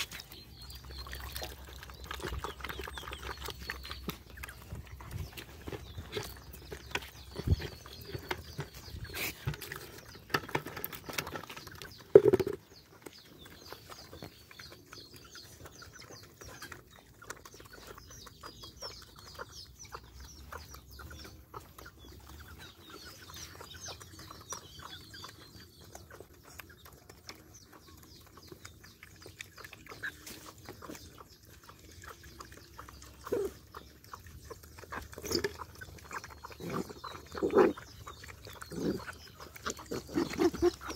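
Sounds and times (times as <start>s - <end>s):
chickens clucking and chirping: 0.0s - 40.9s
dogs lapping and chewing: 0.0s - 40.9s
low animal sounds: 29.6s - 40.9s.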